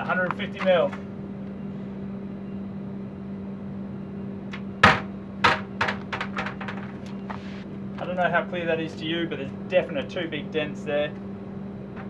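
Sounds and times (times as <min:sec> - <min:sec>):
small knocks: 0:04.5 - 0:07.4.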